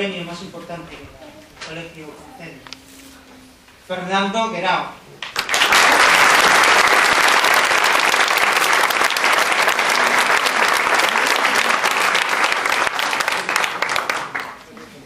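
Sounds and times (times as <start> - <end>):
audience applauding: 5.2 - 15.0.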